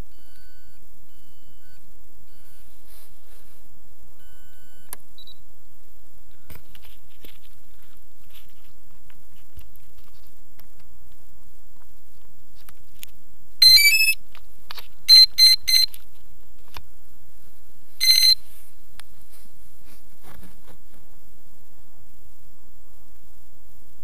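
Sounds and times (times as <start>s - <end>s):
electronic beeps: 0.0s - 2.6s, 4.2s - 5.4s, 13.6s - 14.2s, 15.1s - 16.0s, 18.0s - 18.4s.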